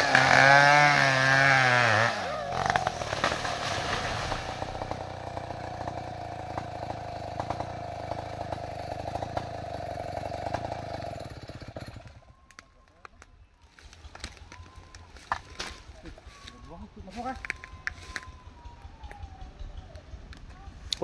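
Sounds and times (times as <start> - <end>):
tree cracking and snapping: 0.0 - 6.7, 11.7 - 16.6, 17.2 - 18.4
chainsaw cutting wood: 0.0 - 12.2
chainsaw idling: 0.0 - 12.6, 13.7 - 21.0.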